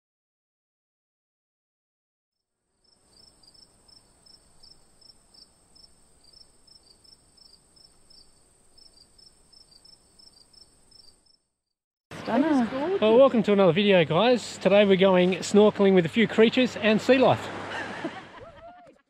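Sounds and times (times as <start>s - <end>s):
crickets chirping: 2.6s - 11.7s.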